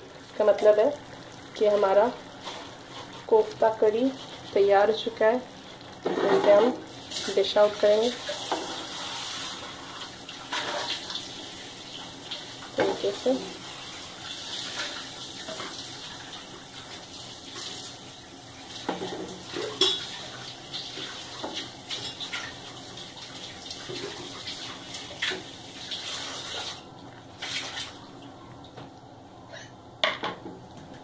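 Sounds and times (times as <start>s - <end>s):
metal ladle scraping a pan: 6.0s - 6.7s, 10.5s - 11.0s.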